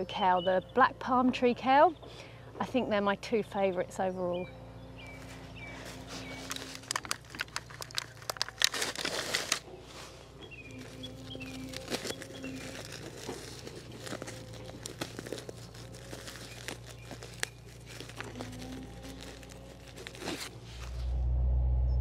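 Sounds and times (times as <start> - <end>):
fabric rustling: 5.1 - 21.1
trowel scraping soil: 5.1 - 21.1.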